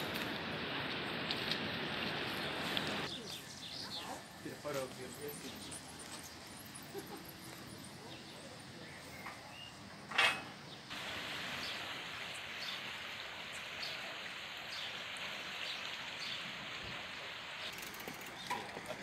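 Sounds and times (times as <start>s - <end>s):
river water rushing: 10.9s - 19.0s.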